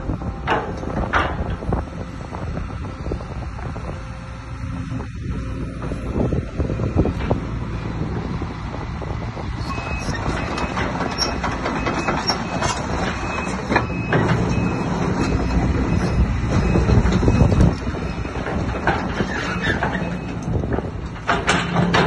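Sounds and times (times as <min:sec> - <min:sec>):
excavator diesel engine running: 0:00.0 - 0:22.0
steel tracks clanking: 0:09.6 - 0:22.0.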